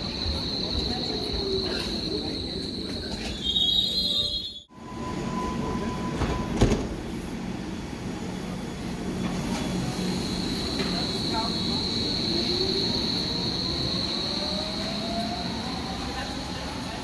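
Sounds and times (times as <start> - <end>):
train wheels squealing: 0.0 - 6.6
train rolling with low rumble: 0.0 - 17.0.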